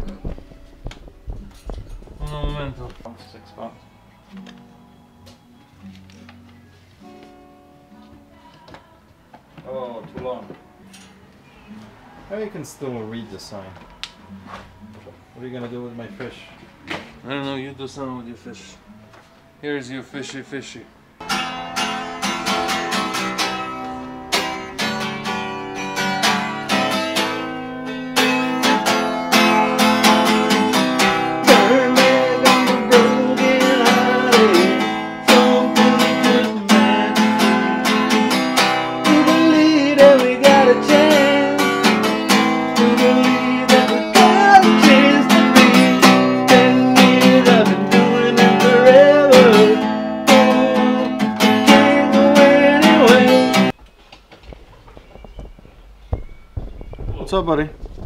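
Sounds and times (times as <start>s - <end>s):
acoustic guitar: 0.0s - 53.8s.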